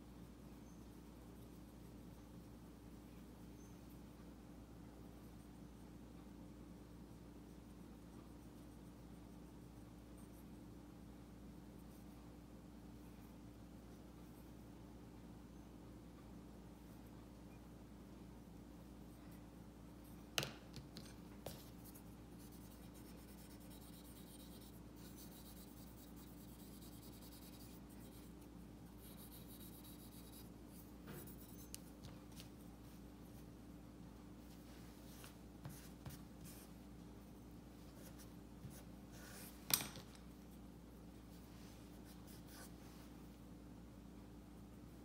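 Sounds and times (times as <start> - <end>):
brush strokes scratching: 21.4 - 33.6, 34.4 - 39.6.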